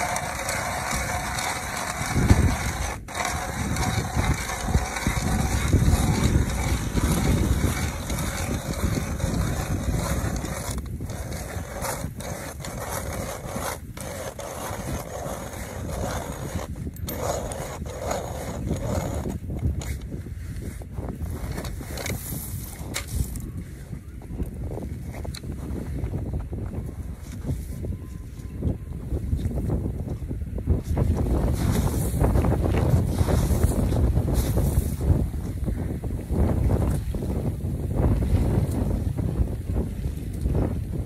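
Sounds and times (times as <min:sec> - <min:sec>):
ice auger grinding through ice: 0:00.0 - 0:20.1, 0:20.7 - 0:23.4, 0:30.9 - 0:35.2.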